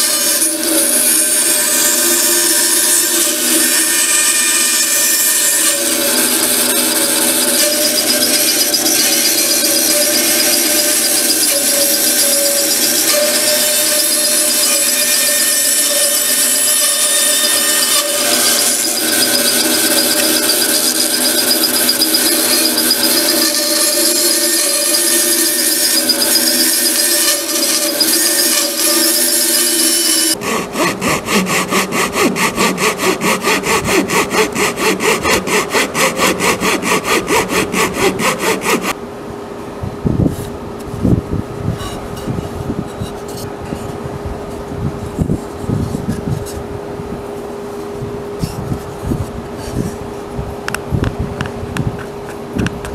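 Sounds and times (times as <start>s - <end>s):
bandsaw cutting wood: 0.0s - 39.0s
hand tool working wood: 0.0s - 39.0s.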